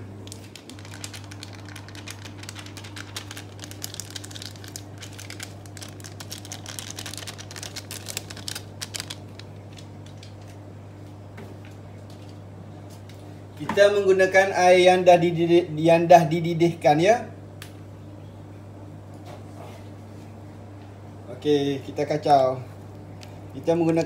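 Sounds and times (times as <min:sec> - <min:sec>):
steady low hum: 0:00.0 - 0:24.0
foil sachet crinkling: 0:00.2 - 0:10.5.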